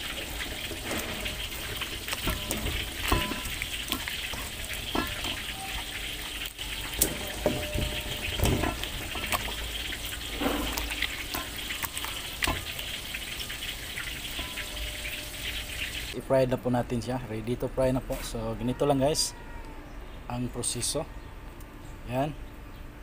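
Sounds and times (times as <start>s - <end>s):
wet squelching and sloshing: 0.0s - 16.2s
soft knocks against metal bowl: 7.0s - 9.6s.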